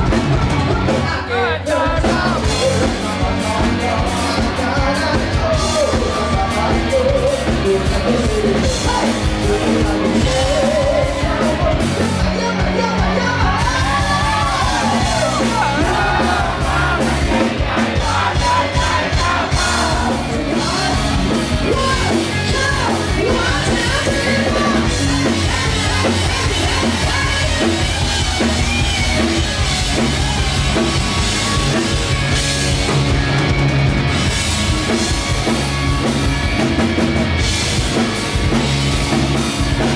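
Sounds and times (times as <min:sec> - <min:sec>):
distorted electric guitars: 0:00.0 - 0:39.9
drum kit: 0:00.0 - 0:39.9
person singing: 0:00.5 - 0:28.4.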